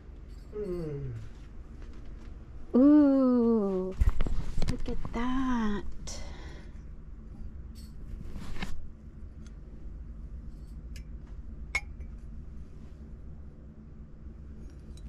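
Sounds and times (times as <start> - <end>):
ceramic mugs clinking: 11.8 - 12.2.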